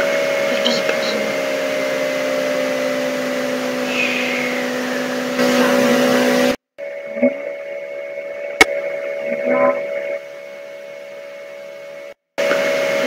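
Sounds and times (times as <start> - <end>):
constant low hum: 0.0 - 12.2
faint wavering whistle: 3.8 - 4.7.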